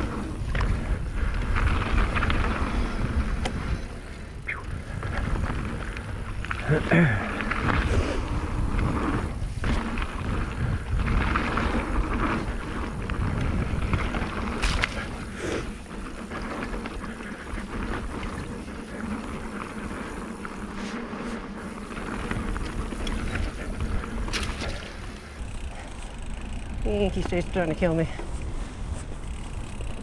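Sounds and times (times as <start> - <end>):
wind on microphone: 0.0 - 25.9
bike rattling over bumps: 0.0 - 30.0
bike tyres rolling over gravel: 0.0 - 30.0.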